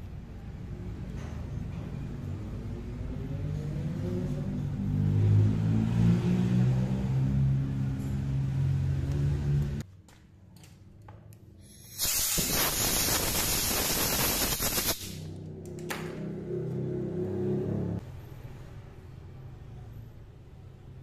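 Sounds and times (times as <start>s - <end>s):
spraying hiss: 11.7s - 15.3s.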